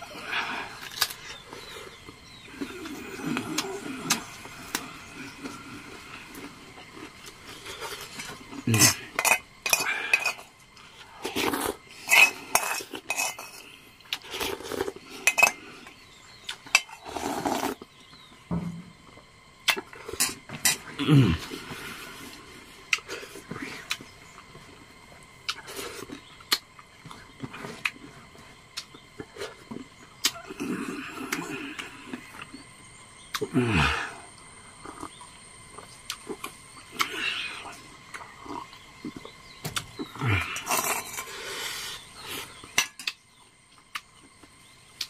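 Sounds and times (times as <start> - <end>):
metal spoon scraping metal bowl: 8.8 - 10.5, 12.0 - 13.6
noodles slurped: 17.0 - 17.8.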